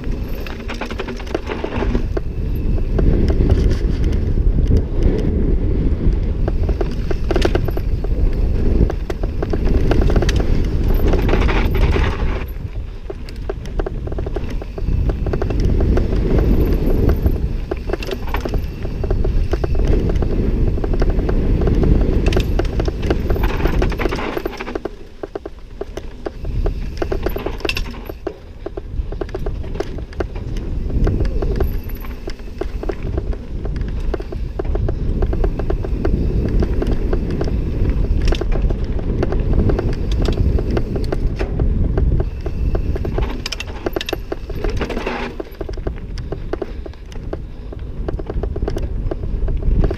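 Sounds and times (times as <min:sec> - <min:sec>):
bike chain rattling: 0:00.0 - 0:49.9
tyres rolling over dirt and stones: 0:00.0 - 0:49.9
wind buffeting microphone: 0:00.0 - 0:49.9.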